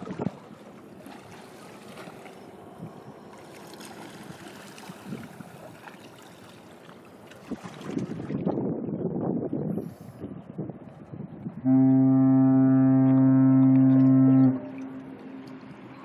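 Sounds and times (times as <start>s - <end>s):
wind buffeting microphone: 0.0s - 0.6s, 4.2s - 5.6s, 7.4s - 16.0s
water: 0.0s - 16.0s
wind: 0.0s - 16.0s.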